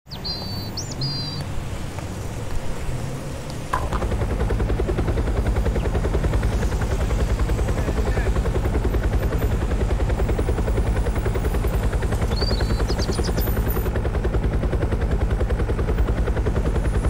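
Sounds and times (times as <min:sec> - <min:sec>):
bird chirps: 0:00.1 - 0:01.4, 0:12.2 - 0:13.8
helicopter rotor chopping: 0:00.1 - 0:17.0.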